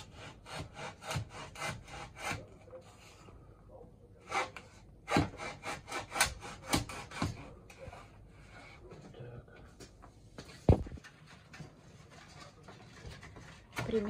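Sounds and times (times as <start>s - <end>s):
hacksaw cutting wood: 0.0s - 2.6s, 4.2s - 7.6s.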